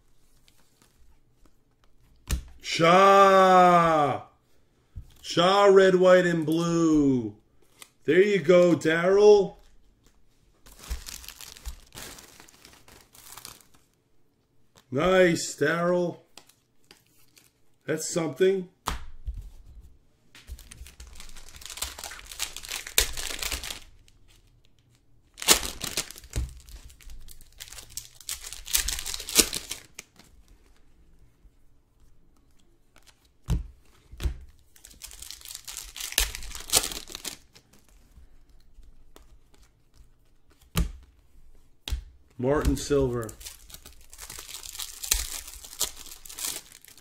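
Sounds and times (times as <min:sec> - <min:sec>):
card pack wrappers crinkling: 0:10.7 - 0:13.9, 0:20.5 - 0:24.4, 0:25.3 - 0:30.3, 0:34.6 - 0:39.6, 0:42.6 - 0:47.0.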